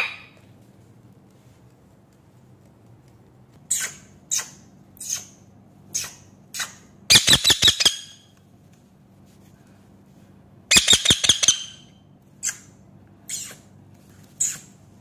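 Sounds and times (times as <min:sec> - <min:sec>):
parakeet squawking: 0:00.0 - 0:00.3, 0:06.0 - 0:08.1, 0:10.7 - 0:11.8.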